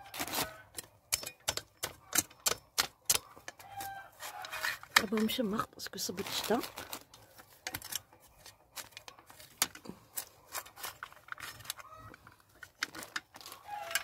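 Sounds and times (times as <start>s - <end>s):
metal trowel scraping soil: 0.0s - 14.0s
sharp taps packing soil: 0.2s - 5.3s.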